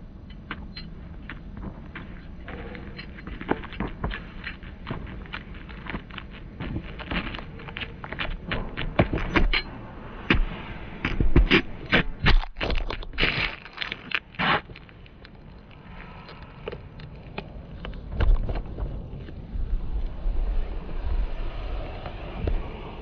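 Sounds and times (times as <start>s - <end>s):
shoe soles scuffing pavement: 1.3s - 9.4s.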